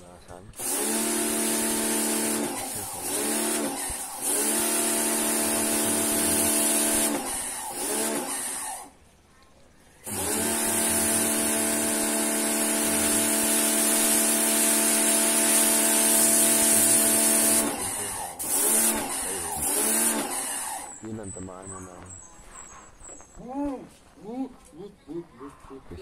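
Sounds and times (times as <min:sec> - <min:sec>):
pressure washer humming: 0:00.5 - 0:09.0, 0:10.0 - 0:22.2
spray jet hissing: 0:00.6 - 0:08.9, 0:10.1 - 0:21.3.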